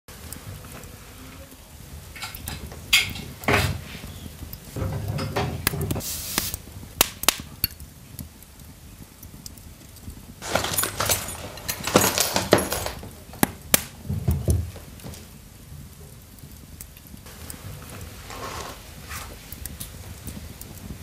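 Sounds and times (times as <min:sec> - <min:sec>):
paper rustling: 0:10.4 - 0:13.1
objects clattering on wooden floor: 0:10.4 - 0:15.3.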